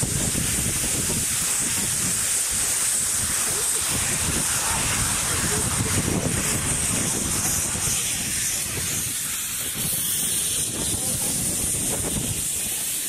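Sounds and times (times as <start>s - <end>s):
steam locomotive hissing steam: 0.0s - 13.0s
low rumble: 3.0s - 12.1s.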